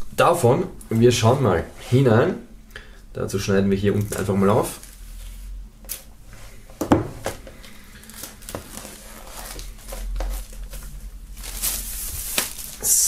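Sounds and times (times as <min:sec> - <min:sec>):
plastic film crinkling: 0:03.9 - 0:06.1, 0:07.6 - 0:13.0
knife slitting plastic wrap: 0:08.0 - 0:13.0.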